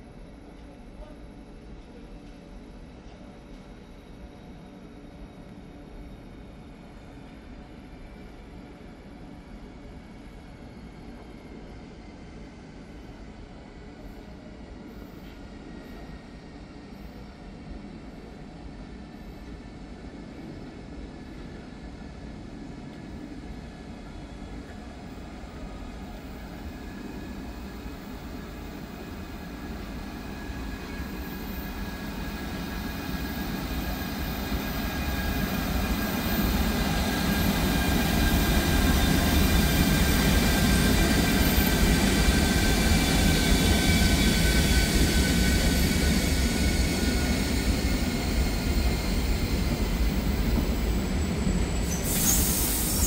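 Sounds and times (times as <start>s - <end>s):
freight train rumbling on rails: 0.0s - 53.0s.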